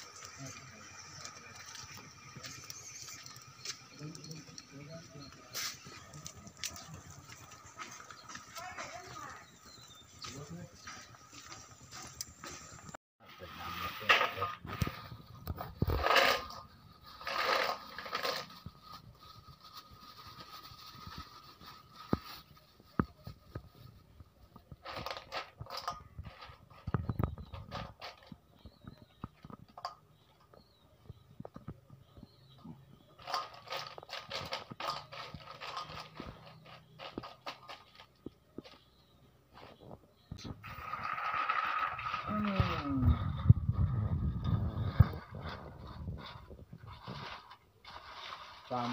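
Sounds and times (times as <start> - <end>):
plastic bag rustling: 14.6 - 27.1, 40.6 - 48.9
snail shells clattering in metal bowl: 15.8 - 19.1, 40.6 - 48.9.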